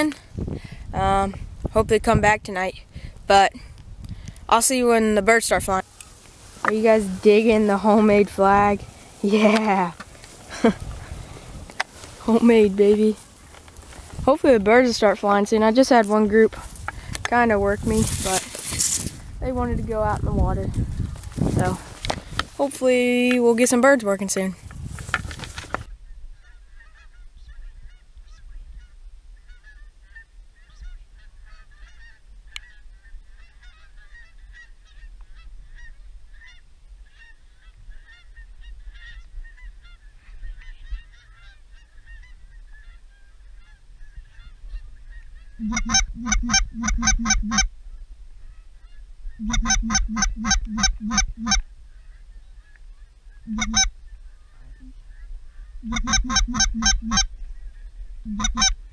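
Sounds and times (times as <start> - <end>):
distant geese chattering: 25.6 - 47.7, 48.4 - 58.9
goose call honks and clucks: 25.6 - 47.7, 48.5 - 52.8, 53.4 - 57.4, 58.2 - 58.9.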